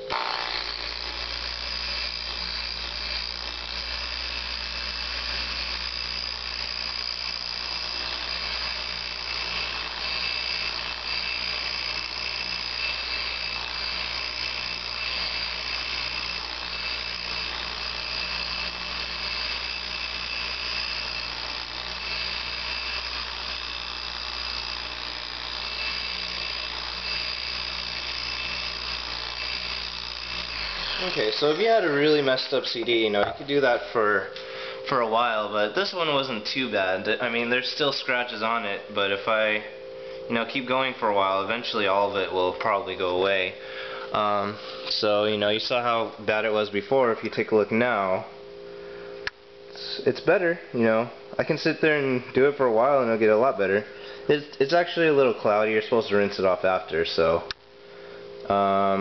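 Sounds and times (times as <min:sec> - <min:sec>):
electric buffer motor whine: 0:00.0 - 0:59.0
foam pad polishing a disc: 0:00.1 - 0:34.3.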